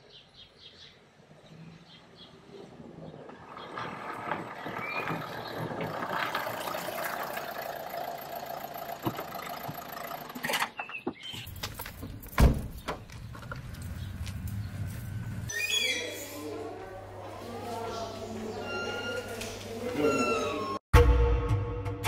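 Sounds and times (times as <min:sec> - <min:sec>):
car engine and tyre noise: 0:01.9 - 0:15.5.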